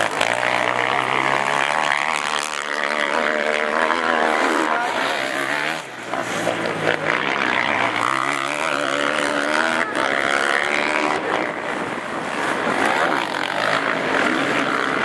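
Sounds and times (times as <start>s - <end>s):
quad engines revving: 0.0s - 15.0s.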